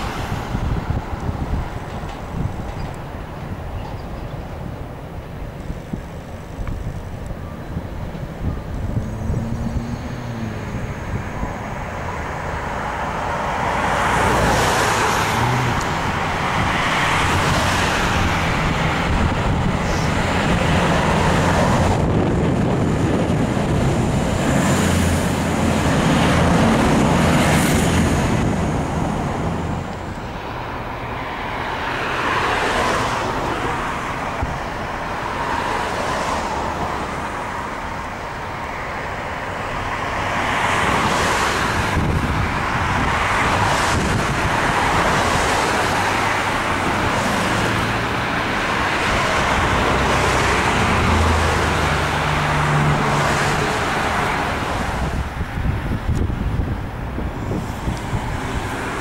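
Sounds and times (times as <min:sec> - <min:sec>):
diesel railcar passing: 0:00.0 - 0:59.0.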